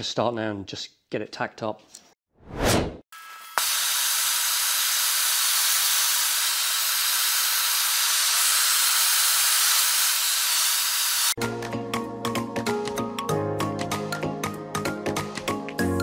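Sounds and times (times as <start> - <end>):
gas torch hissing: 3.6 - 11.4
background music: 11.4 - 16.0.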